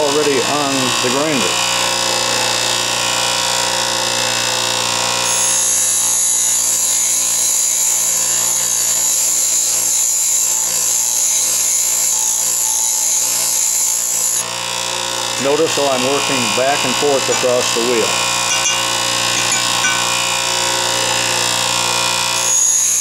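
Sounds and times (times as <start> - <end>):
bench grinder running: 0.0 - 23.0
steel bar grinding on wheel: 15.4 - 23.0.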